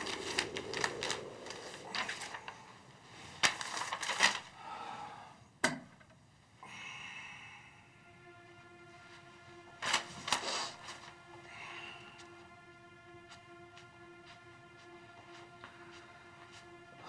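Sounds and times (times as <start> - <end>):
paper rustling: 0.0 - 4.5, 9.8 - 11.2.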